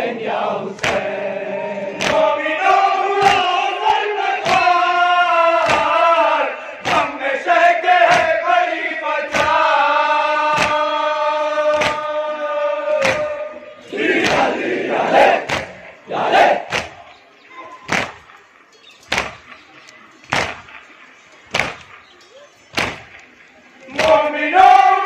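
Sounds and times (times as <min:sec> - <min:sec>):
men chanting in unison: 0:00.0 - 0:16.7, 0:23.9 - 0:25.0.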